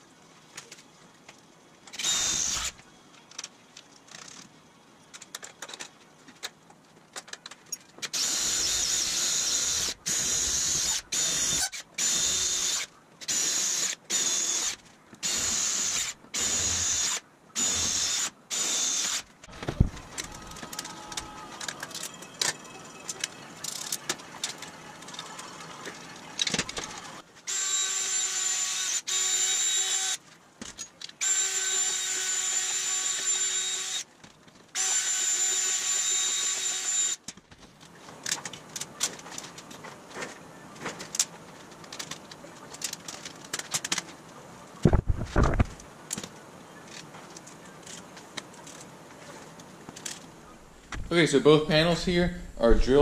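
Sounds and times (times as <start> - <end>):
cordless drill boring metal: 2.0 - 2.8, 8.1 - 19.3, 27.5 - 30.2, 31.2 - 34.1, 34.8 - 37.2
handling knocks and clicks: 3.2 - 8.2.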